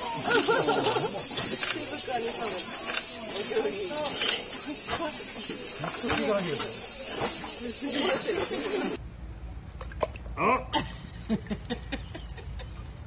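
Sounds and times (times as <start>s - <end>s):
insects chorus: 0.0s - 9.0s
voices: 0.0s - 9.0s
scattered clicks: 1.2s - 7.7s.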